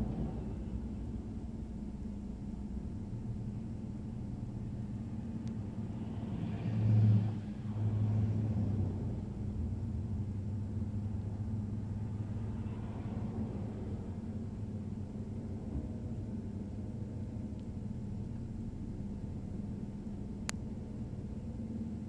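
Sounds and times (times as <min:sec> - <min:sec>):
steady low hum: 0:00.0 - 0:22.0
pickup truck driving past: 0:05.5 - 0:17.2.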